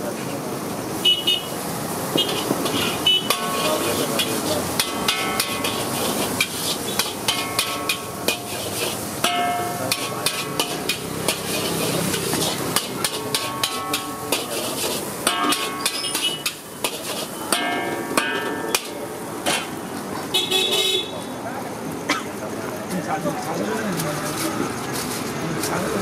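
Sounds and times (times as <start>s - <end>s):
metal spatula scraping a wok: 2.1s - 19.9s.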